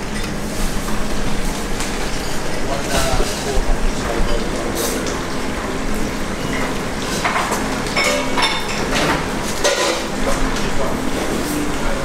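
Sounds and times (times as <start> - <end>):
pans and utensils clinking: 6.4 - 11.7.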